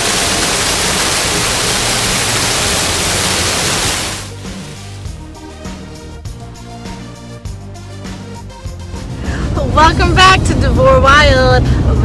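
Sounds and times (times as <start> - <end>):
waterfall pouring into pool: 0.0 - 4.3
music: 4.2 - 12.0.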